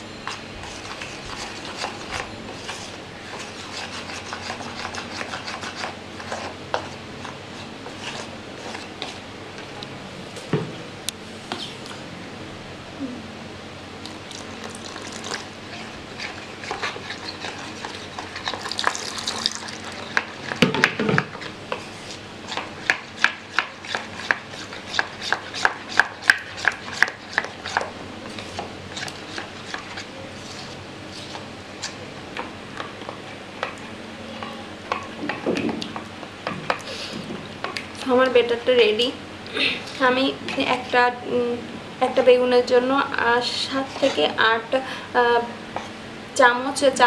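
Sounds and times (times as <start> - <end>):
spoon stirring batter in bowl: 0.2 - 9.2, 14.4 - 20.6, 21.2 - 32.0, 43.7 - 44.4
spoon clicking and scraping bowl: 16.2 - 20.5.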